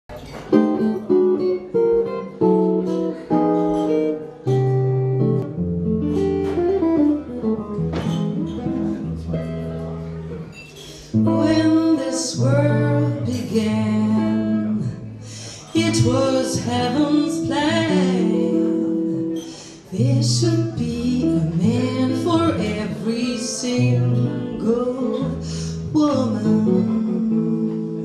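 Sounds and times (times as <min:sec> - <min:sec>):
jazz guitar playing chords: 0:00.2 - 0:28.0
woman singing: 0:11.2 - 0:28.0.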